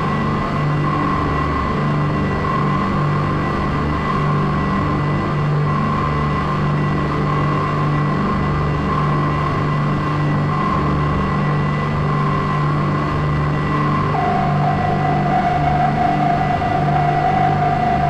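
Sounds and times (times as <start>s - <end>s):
ambient drone music: 12.4s - 18.0s.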